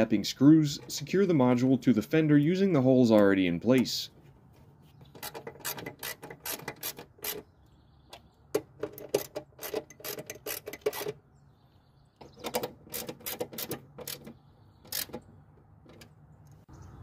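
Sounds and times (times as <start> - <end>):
socket ratchet clicking: 5.2 - 7.4, 8.6 - 11.2, 12.4 - 14.3, 14.9 - 15.2.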